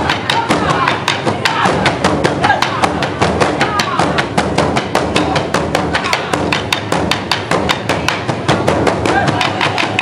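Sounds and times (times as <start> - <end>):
large drums beaten with sticks: 0.0 - 10.0.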